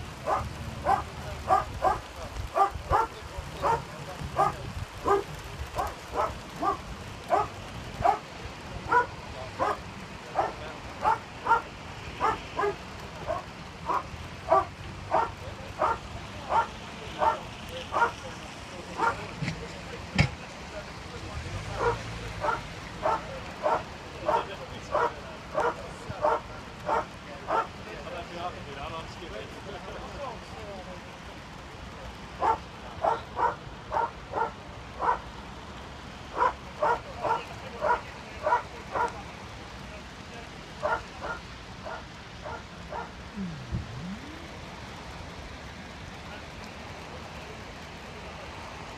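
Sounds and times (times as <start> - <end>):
dog barking: 0.2 - 8.3, 8.9 - 9.8, 10.4 - 18.2, 19.0 - 19.3, 21.8 - 27.7, 32.4 - 35.2, 36.3 - 39.2, 40.8 - 43.2.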